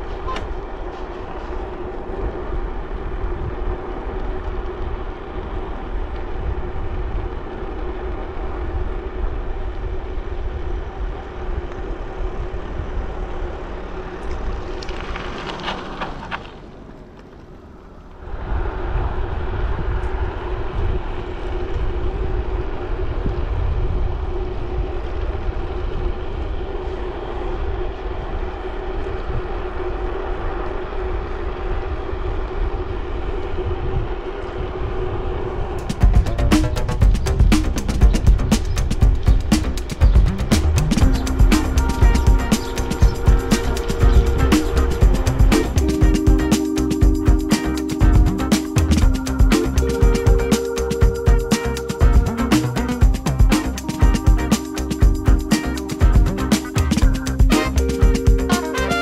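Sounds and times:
wind rushing over microphone: 0.0s - 16.3s, 18.2s - 47.4s
bicycle riding noise: 0.0s - 46.4s
steady hum: 35.1s - 59.0s
heavy low rumble: 35.2s - 58.5s.

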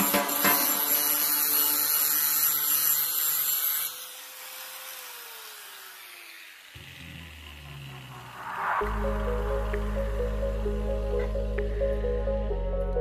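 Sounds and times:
power tool grinding: 0.0s - 8.6s
motor winding down hum: 5.3s - 13.0s.

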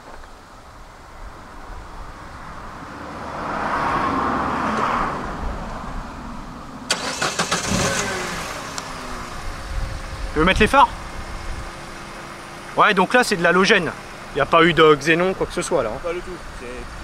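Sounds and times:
car engine starter cranking: 6.9s - 9.4s.

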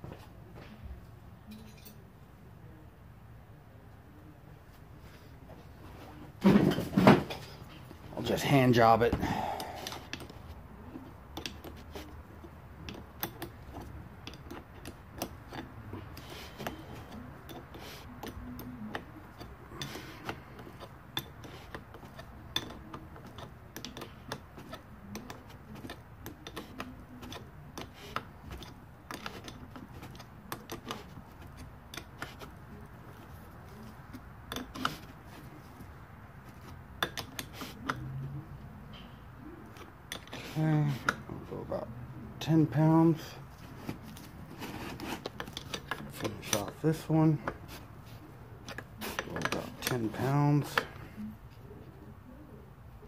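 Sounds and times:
wrench clicking on metal nuts: 16.6s - 32.4s.

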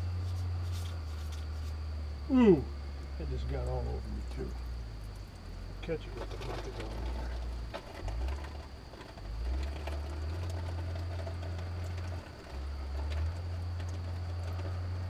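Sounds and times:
thin high whine: 0.0s - 7.9s
machinery droning: 0.0s - 15.0s.

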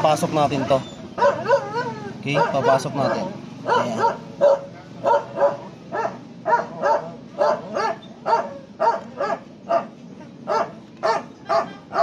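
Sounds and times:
dog barking: 0.6s - 9.9s, 10.5s - 12.0s.

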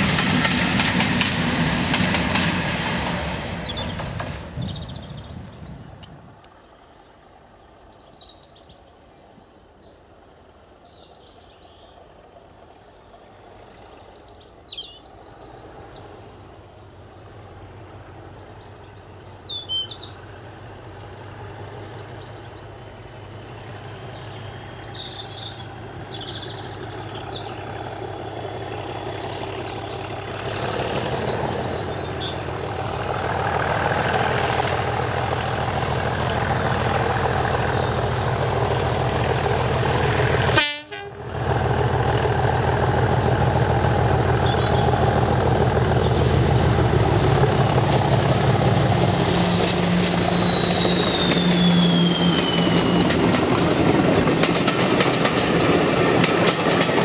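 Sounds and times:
diesel locomotive engine drone: 0.0s - 57.0s
passing train: 0.0s - 57.0s
birds chirping: 2.8s - 16.6s, 18.4s - 20.4s, 21.8s - 40.1s, 44.0s - 54.4s.

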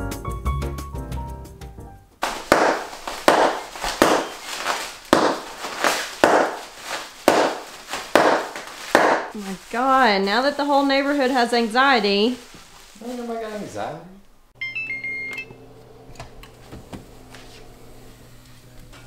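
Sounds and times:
background music: 0.0s - 2.2s
bubble wrap popping: 2.2s - 11.4s.

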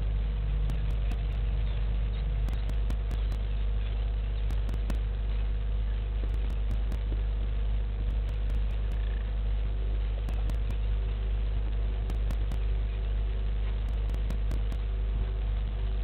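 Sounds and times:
steady low hum: 0.0s - 16.0s
faint ticks: 0.7s - 1.4s, 2.5s - 3.5s, 4.4s - 5.0s, 6.3s - 7.1s, 8.1s - 9.2s, 10.3s - 10.9s, 12.1s - 12.7s, 13.8s - 14.9s.

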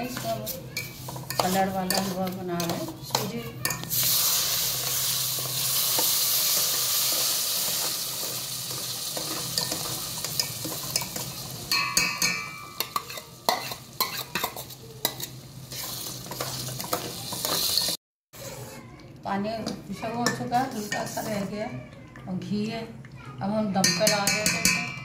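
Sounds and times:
spatula scraping steel pot: 0.0s - 4.1s, 12.8s - 18.8s, 20.2s - 21.6s
water sizzling in hot pot: 0.0s - 18.6s.

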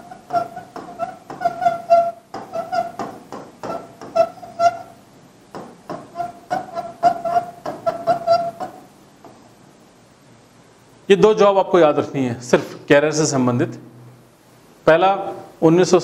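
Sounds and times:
marker tapping on whiteboard: 0.0s - 4.3s, 5.5s - 9.4s
marker squeaking on whiteboard: 0.0s - 8.9s.

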